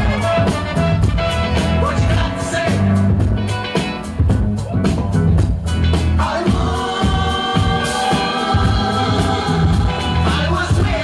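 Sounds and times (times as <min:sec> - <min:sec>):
sung vocals: 0:00.0 - 0:03.3, 0:05.9 - 0:11.0.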